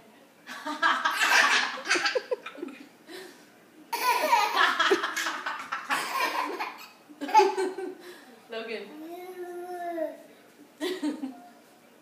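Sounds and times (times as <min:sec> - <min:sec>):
toddler laughing: 0:03.9 - 0:08.0
woman laughing: 0:10.8 - 0:11.5.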